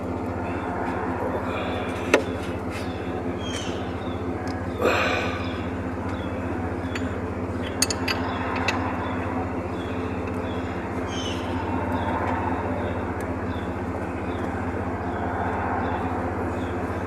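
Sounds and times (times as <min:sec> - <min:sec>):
low mechanical hum: 0:00.0 - 0:17.0
wrench clinking on bolts: 0:06.9 - 0:08.8.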